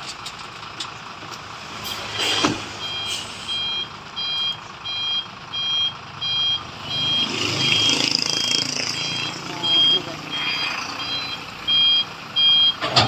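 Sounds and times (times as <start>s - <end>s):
truck reversing beeper: 1.7s - 13.0s.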